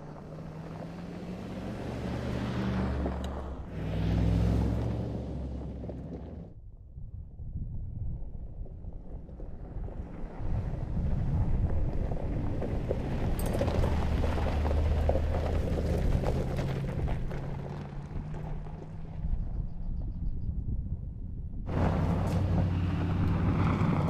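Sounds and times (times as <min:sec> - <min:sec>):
gravel crackling under tyres: 0:00.0 - 0:06.7, 0:07.4 - 0:24.0
engine running under load: 0:21.7 - 0:24.0.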